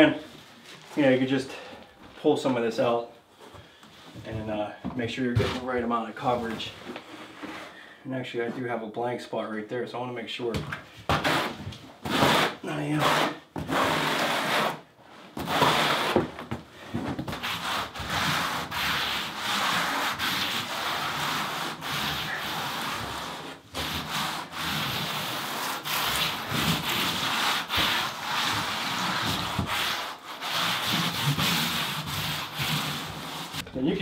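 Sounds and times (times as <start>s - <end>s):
hand tool scraping membrane: 11.1s - 34.0s.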